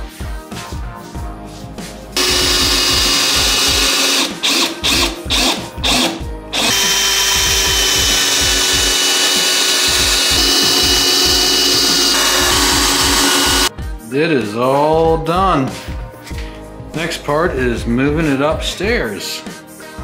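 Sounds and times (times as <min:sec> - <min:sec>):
cordless drill boring into wood: 0:02.2 - 0:13.7.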